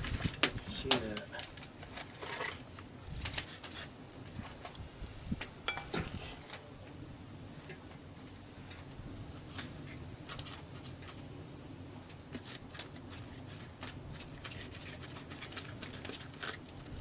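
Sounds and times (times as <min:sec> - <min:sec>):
wooden utensils clicking and scraping: 0:00.0 - 0:04.8, 0:09.3 - 0:11.3, 0:12.3 - 0:17.0.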